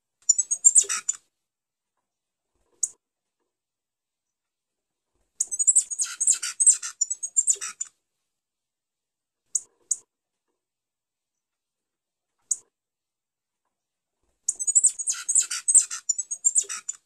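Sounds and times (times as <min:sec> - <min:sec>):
finch singing: 0:00.3 - 0:01.2, 0:05.4 - 0:07.9, 0:14.5 - 0:17.0
short high bird chirps: 0:00.3 - 0:01.2, 0:05.4 - 0:07.9, 0:14.5 - 0:17.0.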